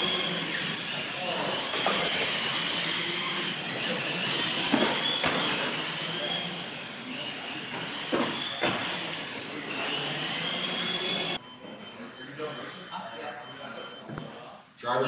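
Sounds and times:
toy truck electric motors whining: 0.0s - 11.4s.

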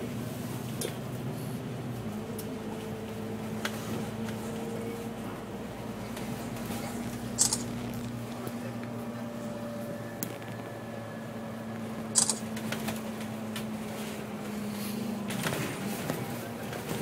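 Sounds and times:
bus engine drone: 0.0s - 17.0s
bus body rattling: 12.2s - 17.0s.

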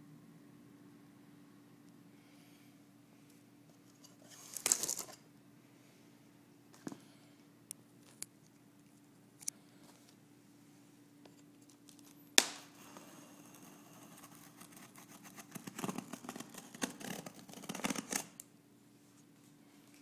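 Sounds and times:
knife cutting packing tape: 14.1s - 18.4s.

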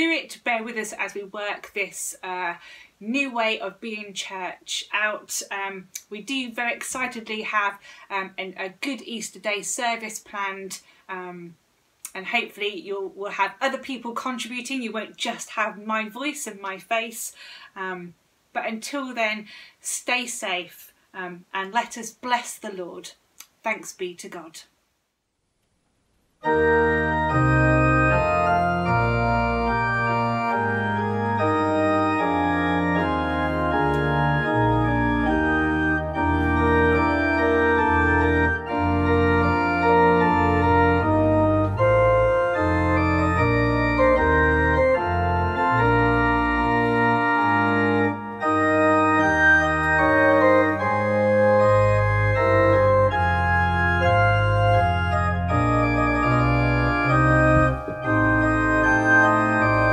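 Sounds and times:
pipe organ playing chords: 26.4s - 59.9s.

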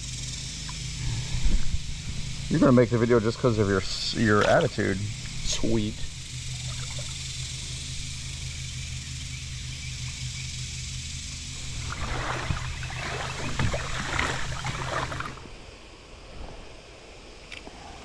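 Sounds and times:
small motor humming: 0.0s - 15.9s
water splashing: 6.5s - 7.3s, 11.6s - 15.7s.

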